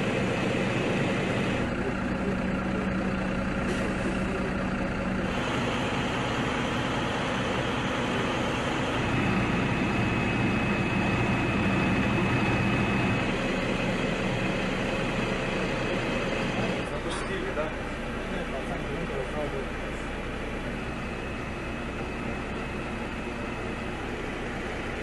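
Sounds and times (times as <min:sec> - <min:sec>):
bus engine rumble: 0:00.0 - 0:25.0.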